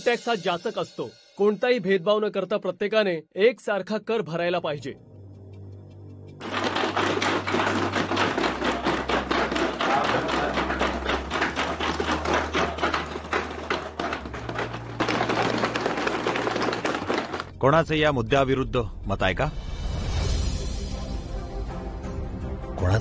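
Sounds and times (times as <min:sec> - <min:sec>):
hands banging on wooden desks: 0:06.4 - 0:17.5.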